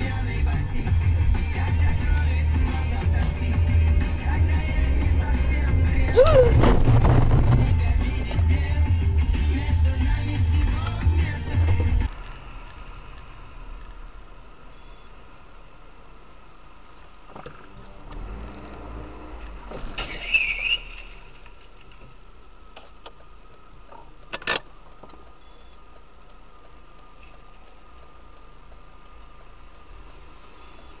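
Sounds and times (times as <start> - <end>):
car driving hum: 0.0 - 31.0
rising rush: 0.9 - 8.4
brief high squeal: 20.0 - 21.2.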